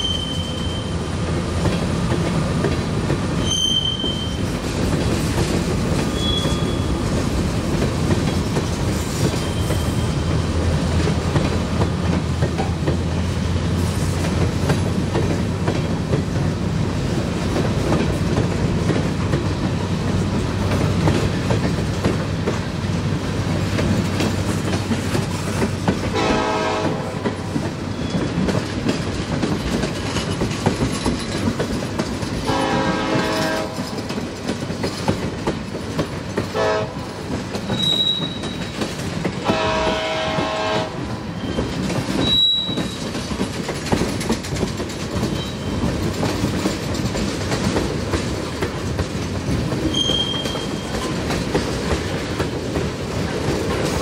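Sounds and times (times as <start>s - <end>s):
high-pitched wheel squeals: 0.0s - 1.0s, 3.4s - 4.5s, 6.1s - 7.0s, 9.3s - 10.3s, 37.7s - 38.7s, 41.3s - 43.1s, 45.3s - 45.9s, 49.9s - 51.0s
wheels clicking on rails: 0.0s - 54.0s
locomotive horn: 26.1s - 27.5s, 32.4s - 34.0s, 36.6s - 37.1s, 39.4s - 41.4s.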